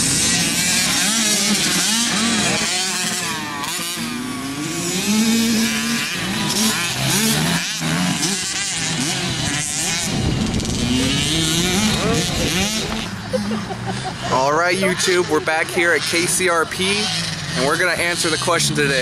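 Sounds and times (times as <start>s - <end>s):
dirt bike engines revving: 0.0s - 19.0s.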